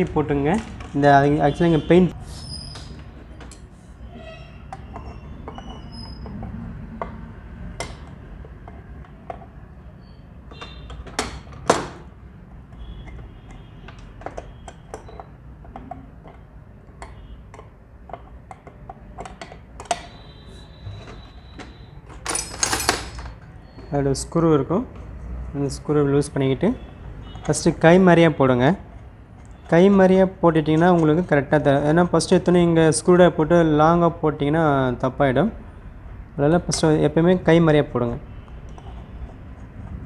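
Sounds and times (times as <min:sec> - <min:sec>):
metal parts clicking and knocking: 0:10.5 - 0:12.1, 0:13.0 - 0:23.6.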